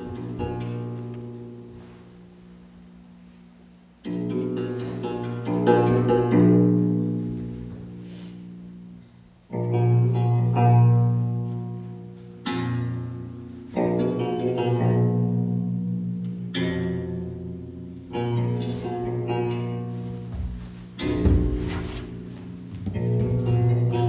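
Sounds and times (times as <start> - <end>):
plucked string chords: 9.5 - 24.0.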